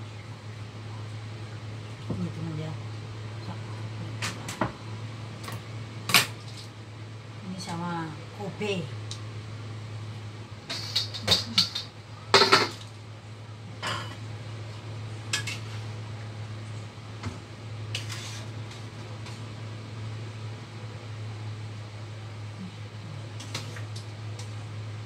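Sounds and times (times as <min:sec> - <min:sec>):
steady low hum: 0:00.0 - 0:25.0
metal cookware clattering: 0:10.7 - 0:12.8.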